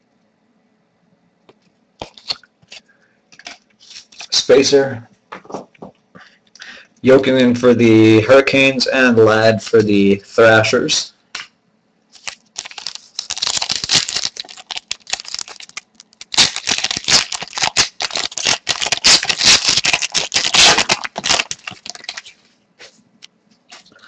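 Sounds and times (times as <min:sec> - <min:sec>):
foil wrapper crinkling and tearing: 0:02.0 - 0:02.8, 0:12.1 - 0:22.4.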